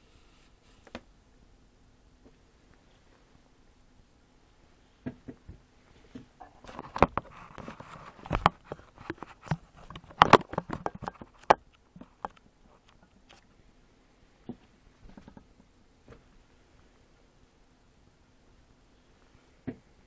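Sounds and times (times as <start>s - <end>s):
camera handling knocks and clicks: 8.2s - 12.4s.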